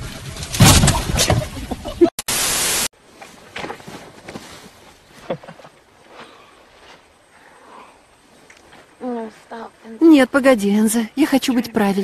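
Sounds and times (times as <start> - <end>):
outdoor noise: 0.0 - 12.0
loud static hiss: 2.2 - 2.9.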